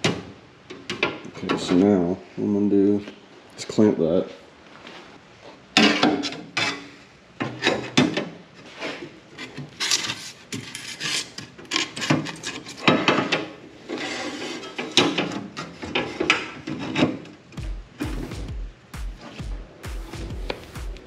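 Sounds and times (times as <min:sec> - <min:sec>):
aluminium scraping and knocking: 0:05.8 - 0:17.6.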